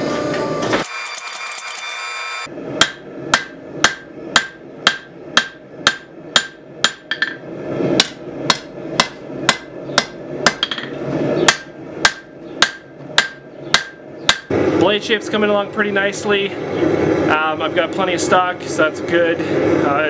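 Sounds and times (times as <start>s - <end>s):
hammer striking metal on anvil: 2.8s - 7.4s, 8.0s - 14.5s.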